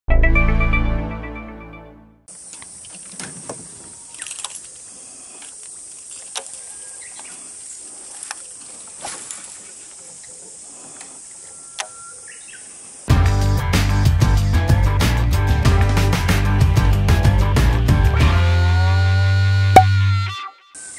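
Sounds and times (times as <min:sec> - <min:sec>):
insects hissing: 0:02.3 - 0:13.1.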